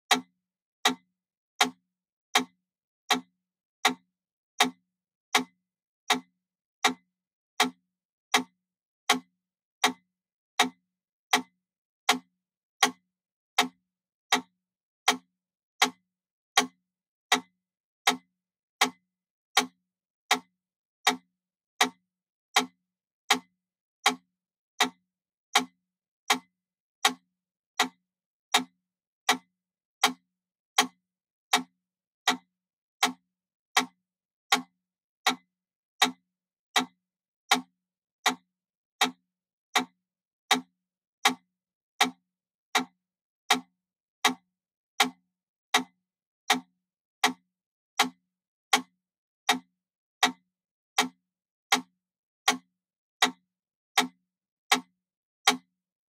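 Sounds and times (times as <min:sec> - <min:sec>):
metronome ticking: 0:36.8 - 0:39.2, 0:42.8 - 0:45.2.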